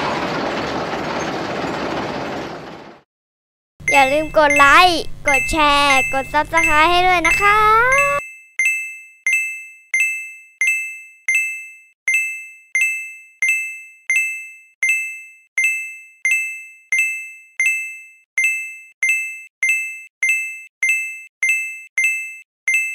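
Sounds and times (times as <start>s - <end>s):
electronic bell ding: 3.9s - 22.9s.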